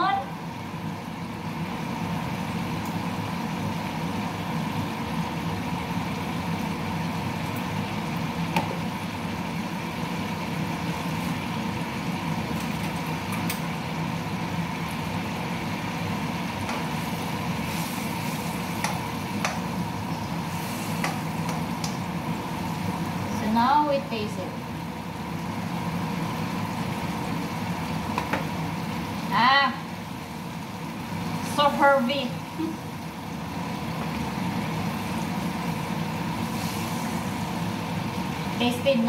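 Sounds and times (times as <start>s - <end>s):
food sizzling in a pan: 0.0s - 39.0s
mechanical hum: 0.0s - 39.0s
utensil clicking against pan: 18.8s - 19.6s.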